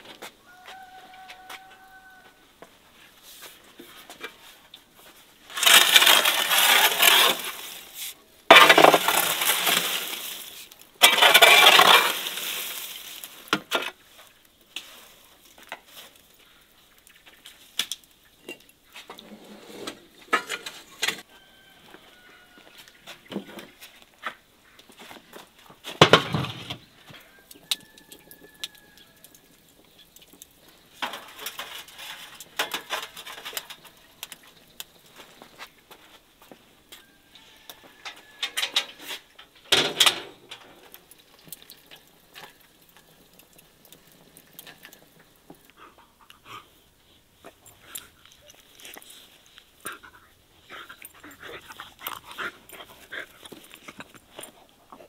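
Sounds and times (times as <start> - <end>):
embers raked across oven floor: 3.0 - 16.3, 18.5 - 21.2, 30.0 - 36.3, 37.4 - 45.6
metal tray and glass jars clinking: 31.0 - 34.0, 38.0 - 40.9.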